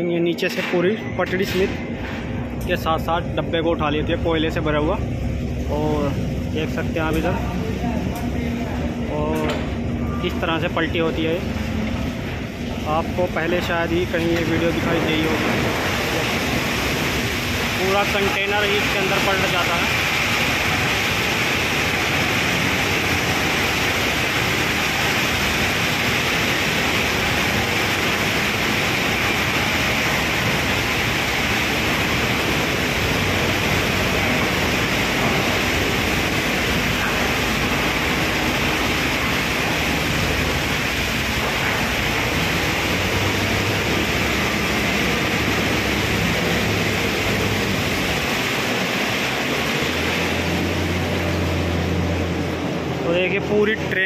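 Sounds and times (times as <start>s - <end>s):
low motor hum: 1.3s - 54.0s
coal pouring into hopper: 11.0s - 53.2s.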